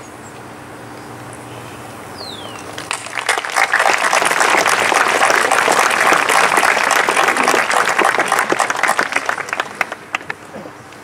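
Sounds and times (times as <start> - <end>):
crowd of children clapping: 2.8 - 10.6.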